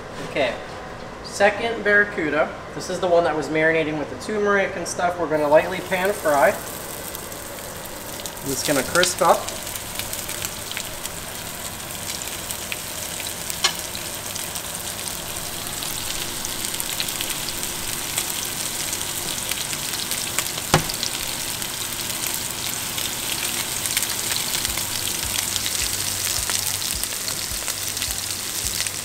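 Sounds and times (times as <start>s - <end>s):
fish sizzling in oil: 5.4s - 29.0s
sharp tap: 20.6s - 21.0s.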